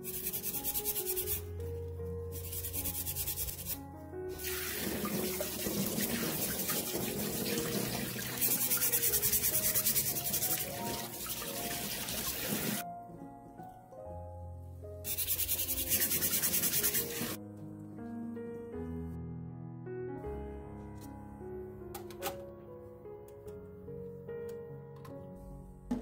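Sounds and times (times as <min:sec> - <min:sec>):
plastic brush scrubbing shells: 0:05.1 - 0:12.8, 0:15.1 - 0:17.4.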